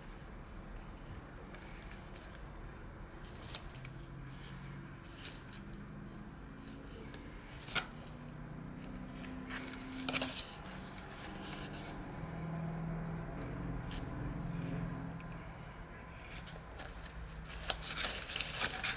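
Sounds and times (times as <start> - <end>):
paper rustling: 8.8 - 12.0, 16.2 - 18.9.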